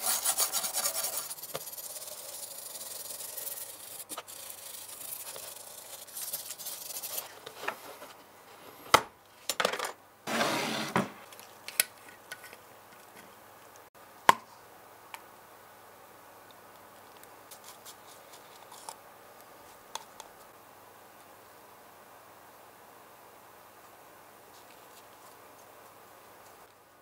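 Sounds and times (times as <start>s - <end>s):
wire brush rasping on metal: 0.0s - 7.3s.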